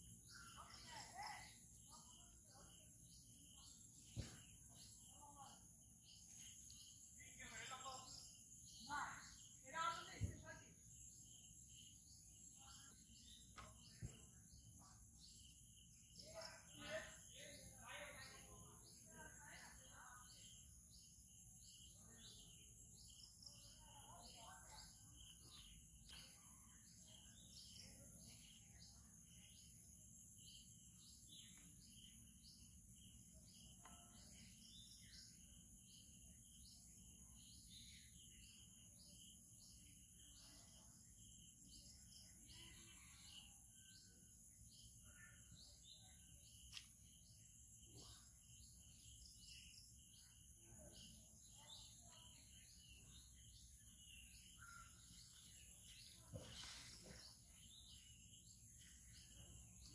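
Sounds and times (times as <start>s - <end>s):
faint click: 46.7s - 47.0s.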